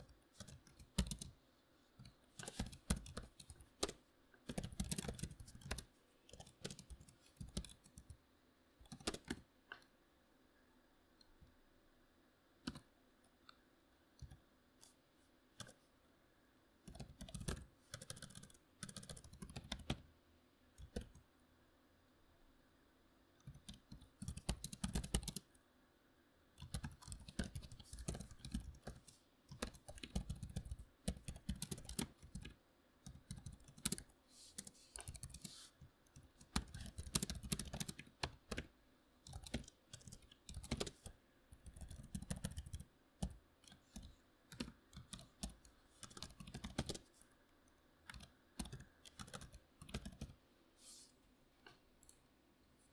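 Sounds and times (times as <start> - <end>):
keyboard typing: 0.0 - 1.4, 2.0 - 8.2, 8.8 - 9.8, 12.6 - 12.9, 16.9 - 20.1, 20.8 - 21.2, 23.4 - 25.5, 26.6 - 47.1, 48.0 - 50.4.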